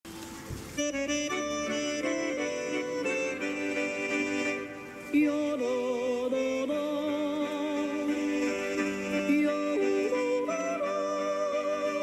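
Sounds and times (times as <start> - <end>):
slow melody of held notes: 0.1 - 12.0.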